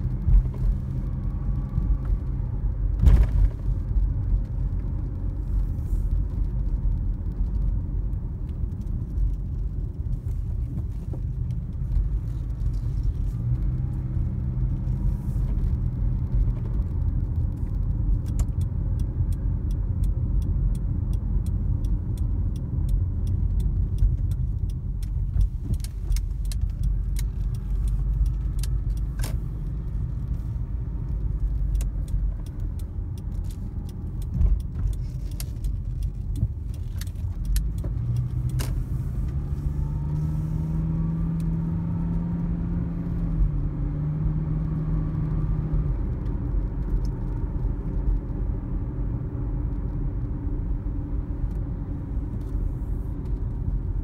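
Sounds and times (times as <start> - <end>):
car road and engine rumble: 0.0 - 54.0
small rattling clicks: 15.6 - 40.0.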